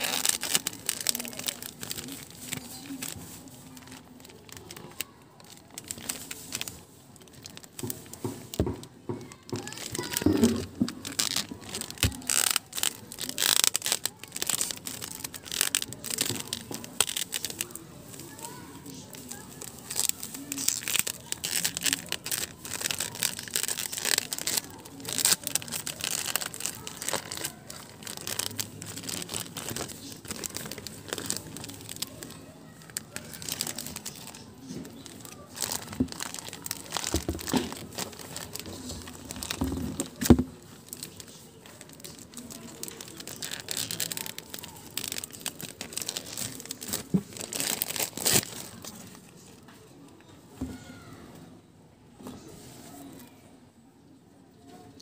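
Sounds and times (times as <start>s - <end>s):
plastic wrapping crinkling and tearing: 0.0s - 49.6s.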